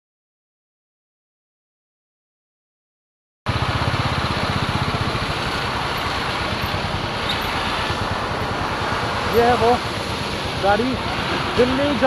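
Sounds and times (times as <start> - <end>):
wind and road rush: 3.5 - 12.0.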